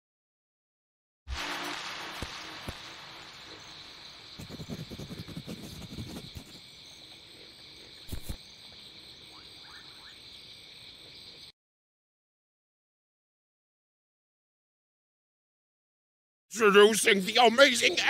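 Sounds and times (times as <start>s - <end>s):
crickets chirping: 1.3s - 11.6s, 16.6s - 18.0s
scratchy rustling: 4.4s - 6.6s.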